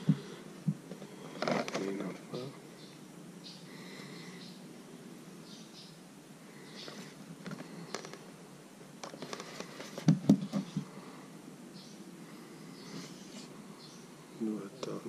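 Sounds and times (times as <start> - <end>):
knocks on cardboard box: 10.0 - 10.8.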